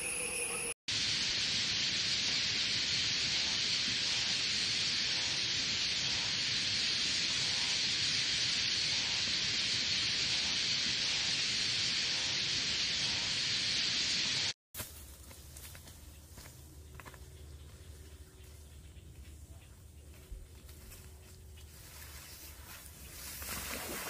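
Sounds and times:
steady hiss: 0:00.9 - 0:15.7.

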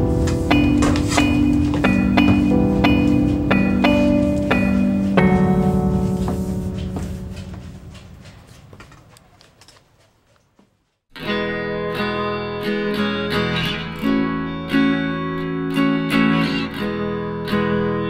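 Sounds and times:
guitar strumming chords: 0:00.0 - 0:08.0, 0:11.2 - 0:18.0
background music: 0:00.0 - 0:08.3.

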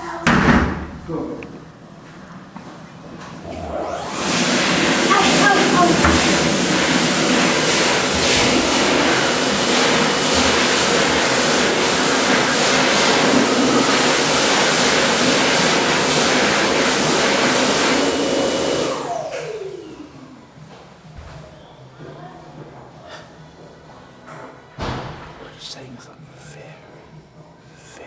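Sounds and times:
falling whine: 0:03.4 - 0:17.1
loud steady rushing noise: 0:03.4 - 0:19.1.

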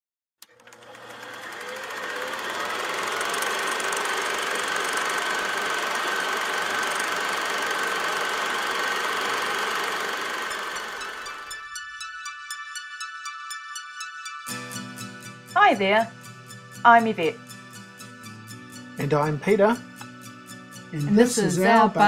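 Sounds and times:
film projector running: 0:00.4 - 0:11.6.

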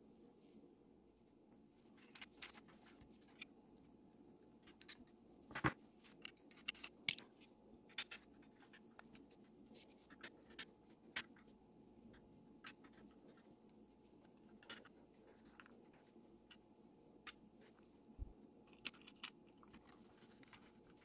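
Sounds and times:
small clicks of model parts: 0:02.0 - 0:03.5, 0:04.6 - 0:05.2, 0:06.1 - 0:09.2, 0:18.7 - 0:21.0.

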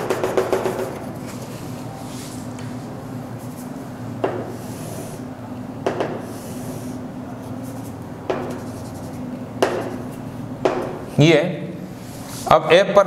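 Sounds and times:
chalk tapping on board: 0:00.0 - 0:01.1, 0:04.2 - 0:04.9, 0:05.8 - 0:11.0
chalk scratching on chalkboard: 0:04.4 - 0:05.3, 0:06.0 - 0:10.2.

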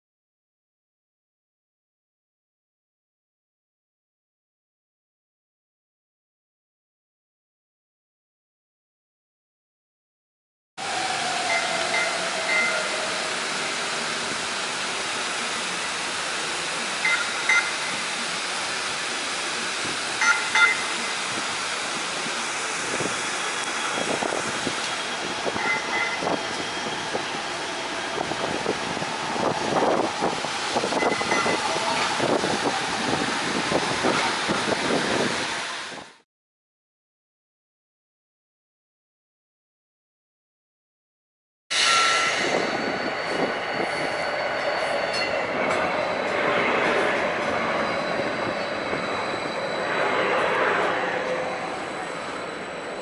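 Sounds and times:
falling whine: 0:10.8 - 0:35.8, 0:41.7 - 0:53.0
tram rolling hiss: 0:10.8 - 0:36.2, 0:41.7 - 0:53.0
short high tones: 0:41.7 - 0:46.4.

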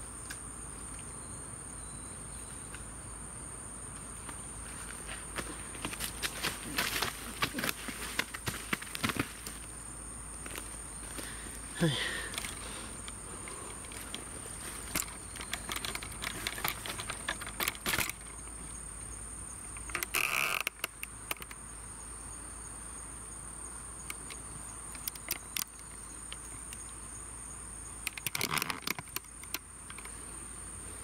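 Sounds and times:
insects chirring: 0:00.0 - 0:31.0
dry leaves rustling underfoot: 0:04.6 - 0:09.7.

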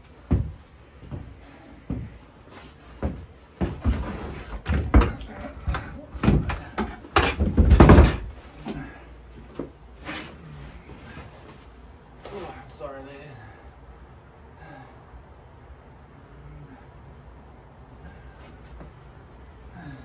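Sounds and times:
wooden box knocks and thumps: 0:03.6 - 0:08.3.

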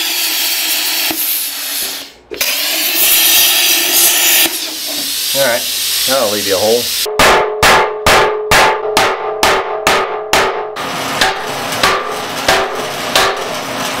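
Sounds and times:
hammer striking steel pin: 0:07.1 - 0:13.6.

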